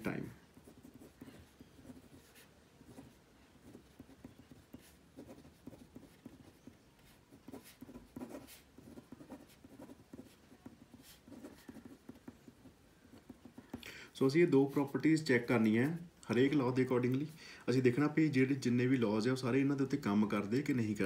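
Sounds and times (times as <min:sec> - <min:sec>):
pen scratching on paper: 0:00.5 - 0:13.8.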